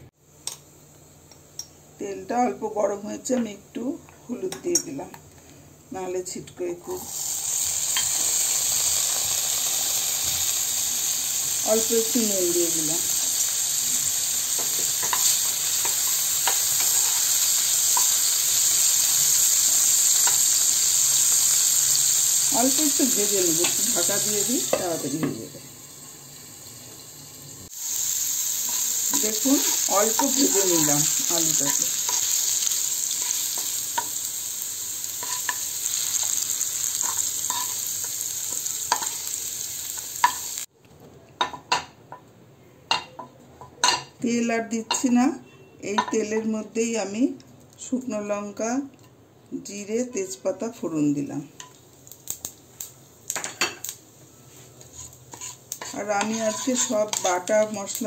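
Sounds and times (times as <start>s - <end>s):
potatoes sizzling in oil: 6.2s - 40.7s, 49.6s - 58.0s
wooden spatula stirring in pan: 54.5s - 57.3s.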